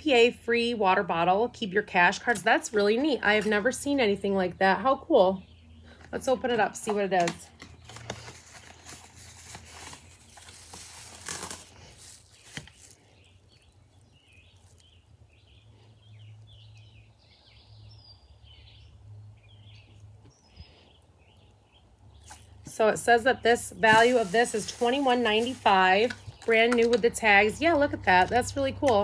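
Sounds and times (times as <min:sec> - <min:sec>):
packaging rustling and crinkling: 0:07.2 - 0:15.0, 0:23.7 - 0:27.0
birds chirping: 0:12.0 - 0:29.0.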